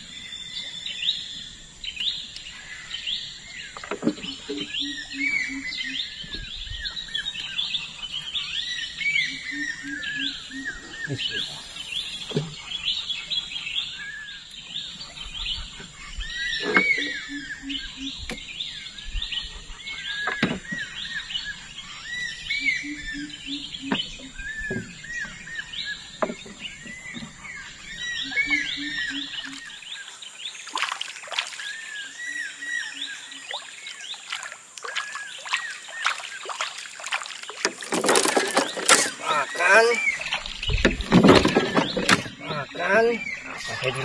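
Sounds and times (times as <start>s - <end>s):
birds whistling: 0.0s - 30.7s, 37.8s - 44.0s
low hooting call: 9.1s - 11.8s, 16.6s - 18.3s, 22.5s - 24.9s, 28.0s - 29.7s, 38.8s - 40.4s.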